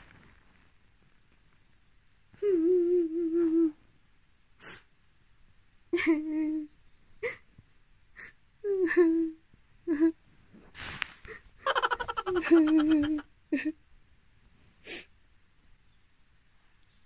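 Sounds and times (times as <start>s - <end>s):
woman fake crying: 6.0s - 7.4s, 8.2s - 10.2s, 11.6s - 13.8s.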